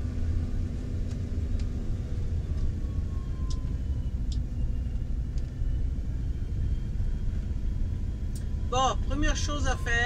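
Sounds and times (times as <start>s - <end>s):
van engine and road rumble: 0.0s - 10.0s.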